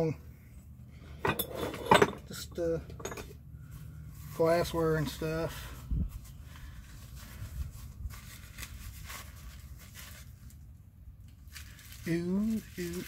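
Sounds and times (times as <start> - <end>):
low steady rumble: 0.0 - 13.0
faint cloth rustling: 3.6 - 10.8.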